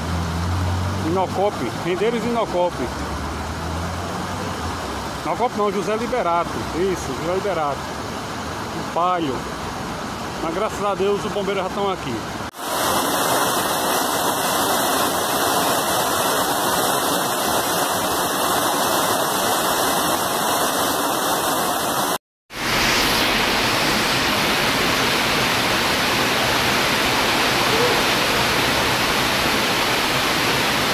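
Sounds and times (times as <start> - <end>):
floodwater running on street: 0.0 - 30.9
heavy rain: 0.0 - 30.9
floodwater rushing down stairs: 12.5 - 30.9.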